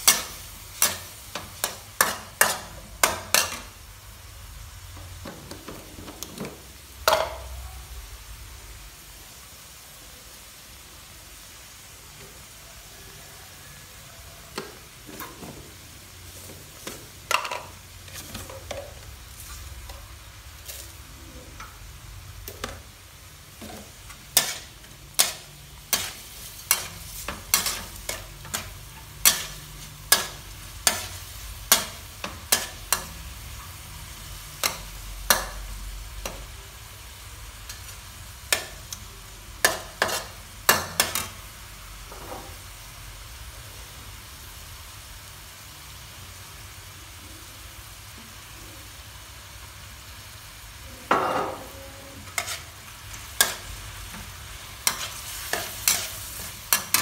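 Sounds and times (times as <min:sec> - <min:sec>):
oil sizzling: 0:00.0 - 0:57.0
metal spatula scraping wok: 0:23.5 - 0:33.8, 0:39.6 - 0:41.4, 0:51.6 - 0:57.0.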